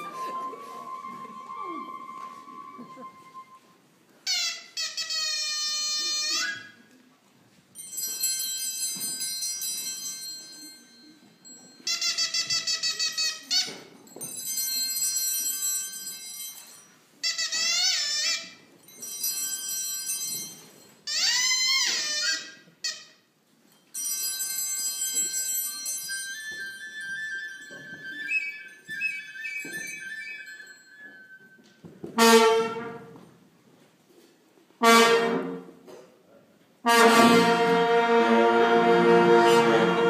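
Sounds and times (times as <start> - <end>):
high-pitched bleating squeals: 21.1 - 23.0.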